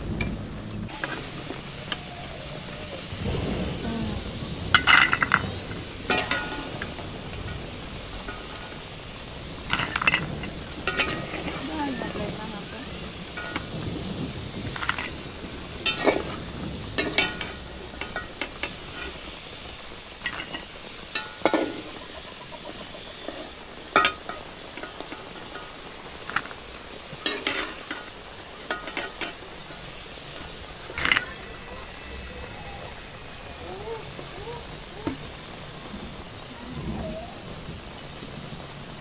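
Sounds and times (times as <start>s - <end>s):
food sizzling in hot oil: 0.0s - 39.0s
metal spatula scraping a pan: 9.6s - 12.3s, 13.0s - 13.7s, 15.8s - 16.4s, 17.0s - 19.4s, 27.2s - 31.4s.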